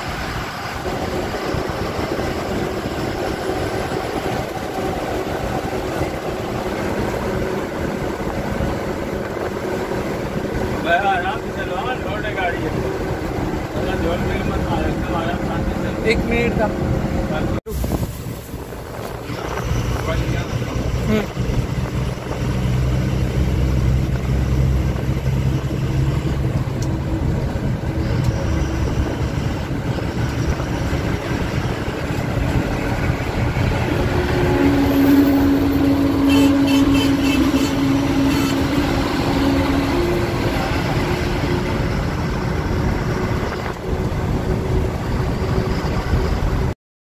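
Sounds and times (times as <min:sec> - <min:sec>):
bus diesel engine running: 0:00.0 - 0:46.8
road noise: 0:00.0 - 0:46.8.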